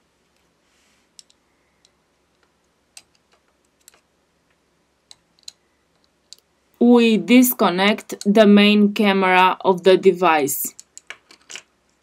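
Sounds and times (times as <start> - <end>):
small clicks and taps: 1.2 - 6.5.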